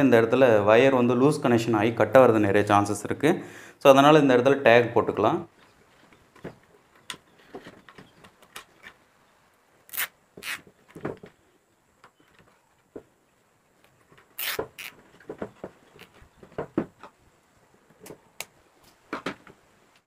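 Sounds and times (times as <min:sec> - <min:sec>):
cable tie rasping and clicking: 0:09.9 - 0:11.1, 0:13.8 - 0:16.3.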